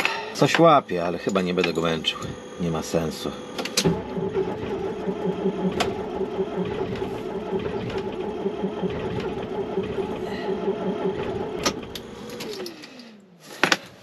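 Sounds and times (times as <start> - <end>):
starter motor cranking diesel engine: 0.0 - 13.8.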